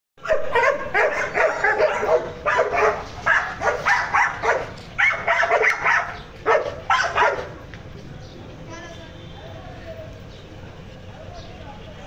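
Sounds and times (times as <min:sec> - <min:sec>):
dog barking: 0:00.2 - 0:07.6.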